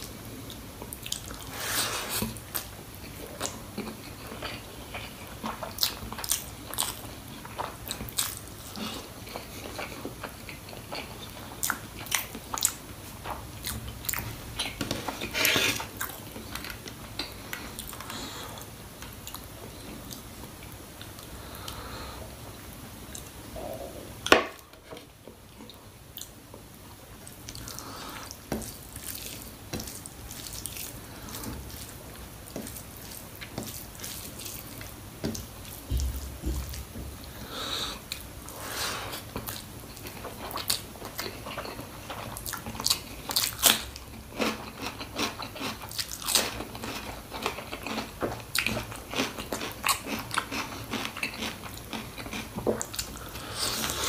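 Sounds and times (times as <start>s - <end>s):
chewing clicks and crunches: 39.4s - 53.1s.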